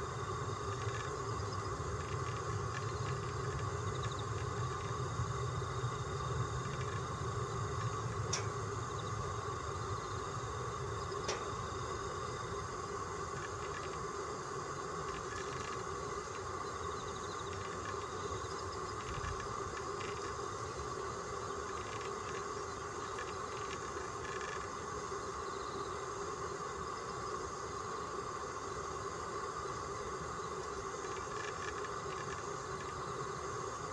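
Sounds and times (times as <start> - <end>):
background hum and hiss: 0.0 - 33.9
faint clicks: 7.8 - 8.6.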